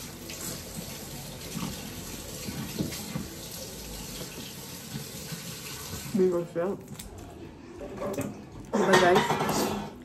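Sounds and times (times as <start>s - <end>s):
tap running into sink: 2.4s - 6.1s.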